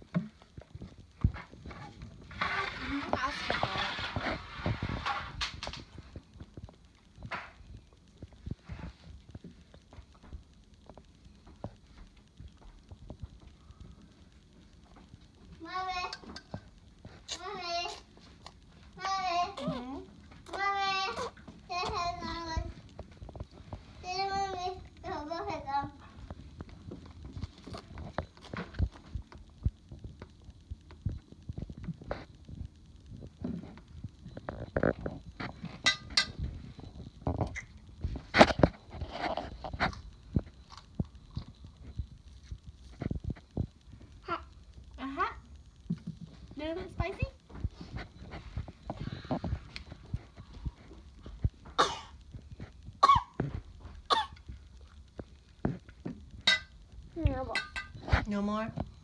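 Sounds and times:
toddler crunching lettuce: 0:15.6 - 0:30.4
toddler babbling: 0:19.4 - 0:22.3.

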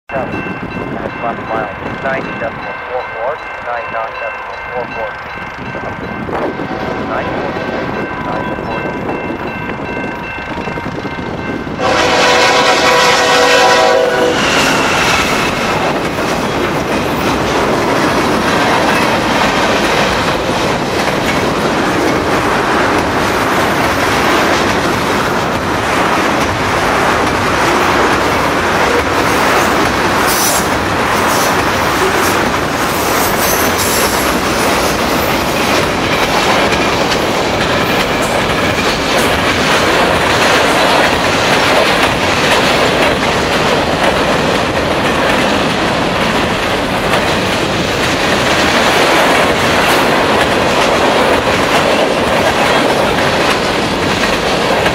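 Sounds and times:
level-crossing bell ringing: 0:00.1 - 0:11.8
train wheels clattering on rails: 0:05.1 - 0:54.9
locomotive horn blast: 0:11.8 - 0:15.5.

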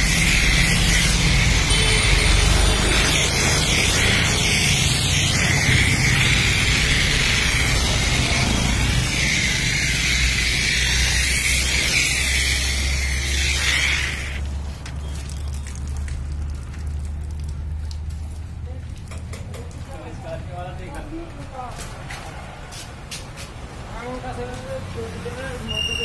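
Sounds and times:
pressure washer spray hissing: 0:00.0 - 0:14.4
pump motor humming: 0:00.0 - 0:17.6.

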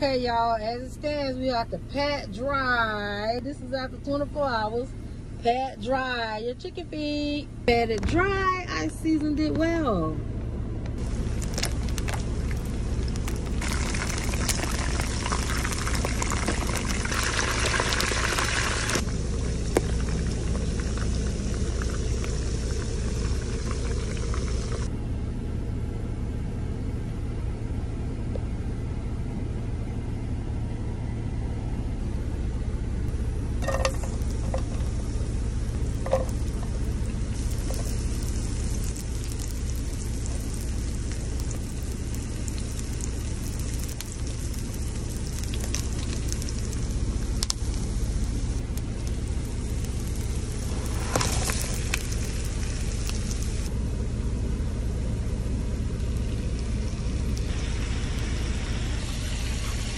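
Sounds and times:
low rumble: 0:00.0 - 0:59.9
hot oil sizzling: 0:11.0 - 0:24.9, 0:33.4 - 0:53.7, 0:55.3 - 0:59.9.

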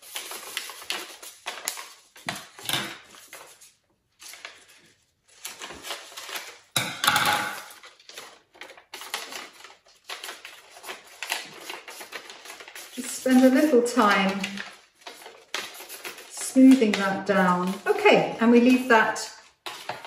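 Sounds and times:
foil paper crinkling: 0:00.0 - 0:06.8, 0:07.6 - 0:20.0
scissors cutting foil: 0:07.5 - 0:18.0.

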